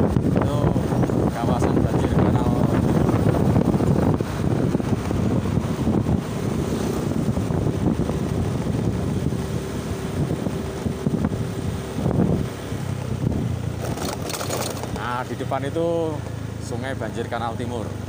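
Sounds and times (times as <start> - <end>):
wind rumbling on microphone: 0.0 - 16.6
road noise: 0.0 - 18.0
scooter engine: 3.2 - 16.6.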